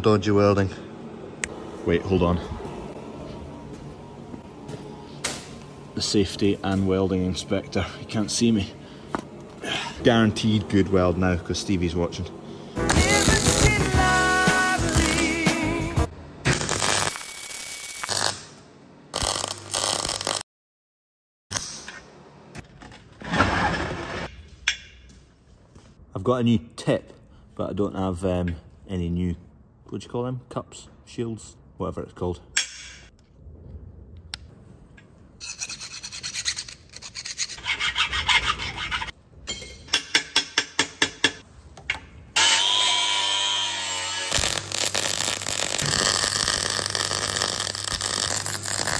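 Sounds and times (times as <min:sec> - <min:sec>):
welder arc crackling: 0:12.8 - 0:15.6, 0:16.5 - 0:18.5, 0:19.1 - 0:20.4, 0:44.3 - 0:48.9
metal filing and scraping strokes: 0:35.4 - 0:39.1.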